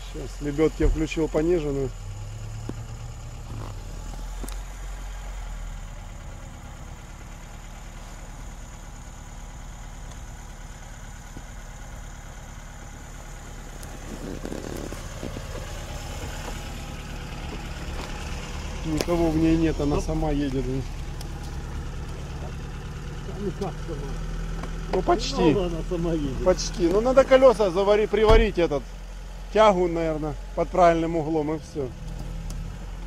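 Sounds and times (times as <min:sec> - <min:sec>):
car engine idling: 0:00.0 - 0:33.0
winch hauling cable: 0:13.3 - 0:28.7.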